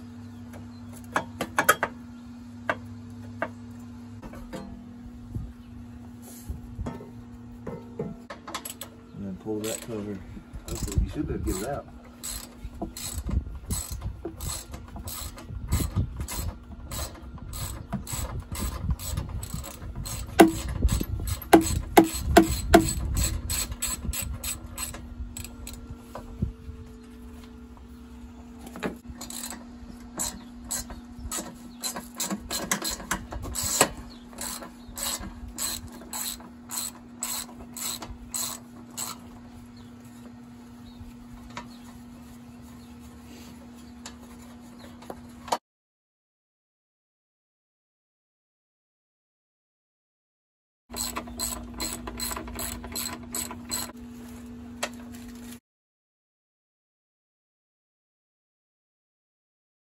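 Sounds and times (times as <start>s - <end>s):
sharp metal knocks: 20.2s - 23.4s
ratchet wrench clicking: 30.2s - 39.2s, 50.9s - 53.9s.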